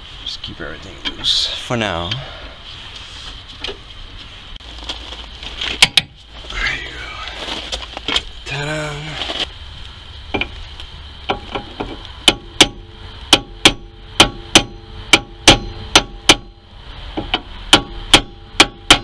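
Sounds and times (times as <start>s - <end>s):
hammer striking metal punch: 11.3s - 16.6s, 17.2s - 19.0s.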